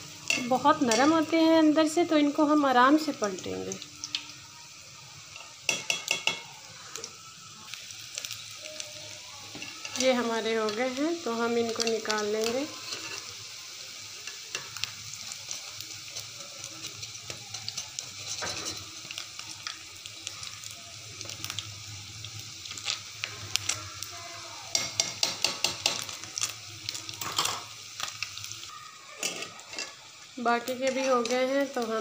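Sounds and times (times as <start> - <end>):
pakoras deep-frying in hot oil: 0.0 - 32.0.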